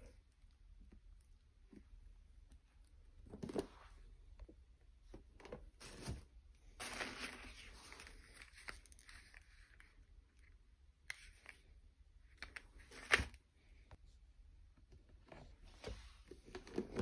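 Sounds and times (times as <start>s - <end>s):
tissue paper rustling: 5.8s - 9.5s.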